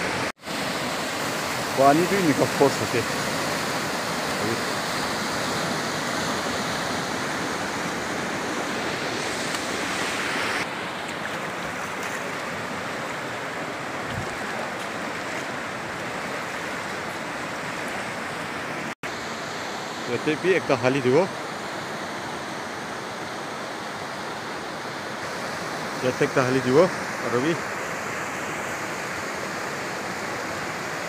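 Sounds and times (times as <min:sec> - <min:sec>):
river rapids rushing over rocks: 0:00.0 - 0:19.0.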